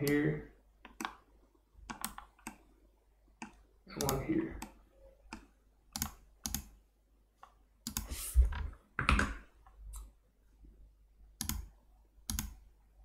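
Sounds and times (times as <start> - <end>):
mouse and keyboard clicks: 1.8 - 2.7, 3.4 - 6.8, 7.4 - 8.2, 11.4 - 12.6.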